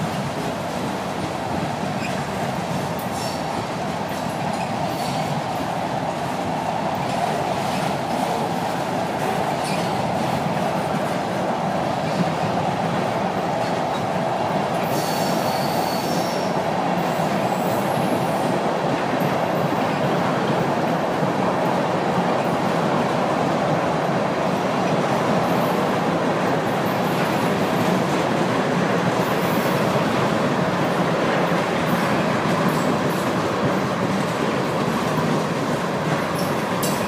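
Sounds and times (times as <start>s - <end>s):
freight train cars rolling: 0.0s - 23.3s, 24.5s - 37.0s
high wheel squeals: 14.8s - 16.5s.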